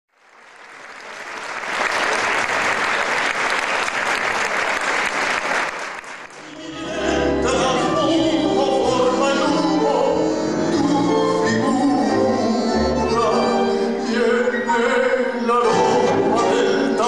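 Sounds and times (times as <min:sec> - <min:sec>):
audience applause: 0:00.1 - 0:06.6
tango ensemble playing: 0:06.4 - 0:17.0.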